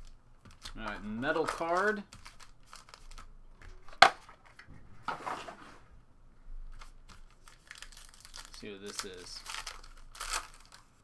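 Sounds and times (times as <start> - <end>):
foil packs rustling: 0.0 - 3.3, 6.7 - 11.0
card packs clicking: 0.0 - 4.6, 6.7 - 10.8.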